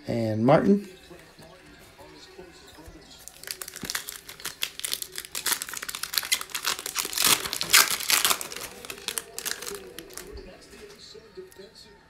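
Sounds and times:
foil wrapper crinkling and tearing: 0:03.2 - 0:10.4.

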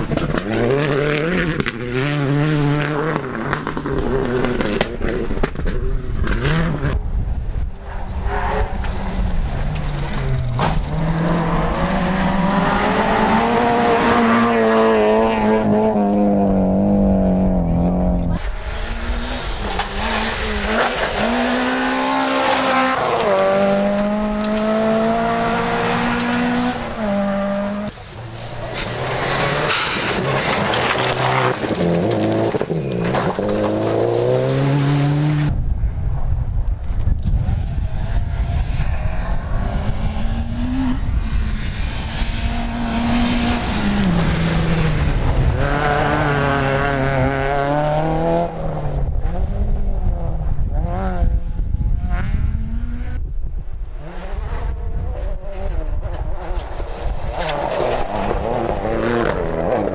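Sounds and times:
rally car engine accelerating: 0:00.0 - 0:35.6, 0:37.5 - 0:59.9
low rumble: 0:23.5 - 0:55.2
tyres sliding on gravel: 0:28.0 - 0:35.3.

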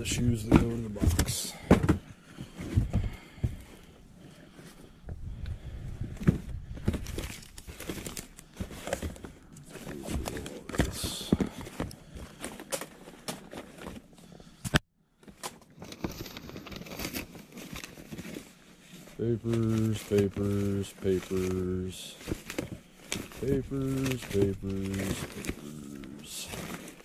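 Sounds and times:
cardboard boxes knocking and scraping: 0:00.1 - 0:03.7, 0:06.1 - 0:14.0
paper rustling and crinkling: 0:06.2 - 0:14.4, 0:15.2 - 0:27.0.

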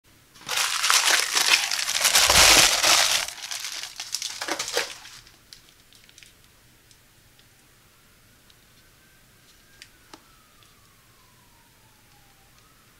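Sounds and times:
plastic mailer crinkling: 0:00.4 - 0:05.4.

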